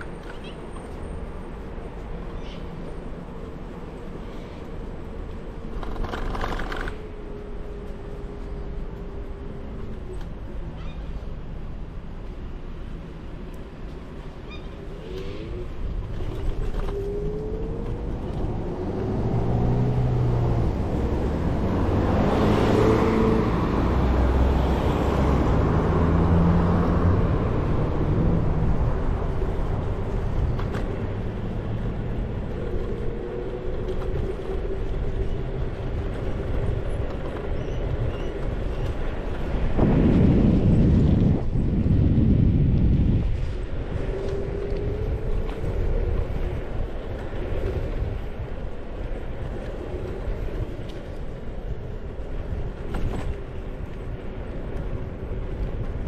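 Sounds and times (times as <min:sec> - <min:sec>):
low road and wind rumble: 0:00.0 - 0:56.0
car passing: 0:16.9 - 0:34.9.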